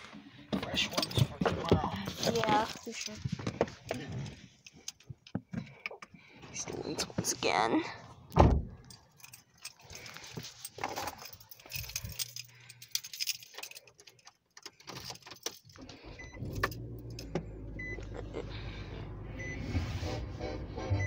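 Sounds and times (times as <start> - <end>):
keys jangling: 8.7 - 17.4
car engine starting and humming: 14.9 - 21.0.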